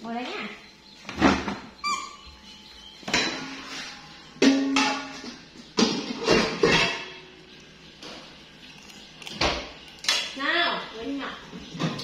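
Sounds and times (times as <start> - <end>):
pots and pans clattering: 3.0 - 7.4, 8.0 - 10.4, 11.5 - 12.0.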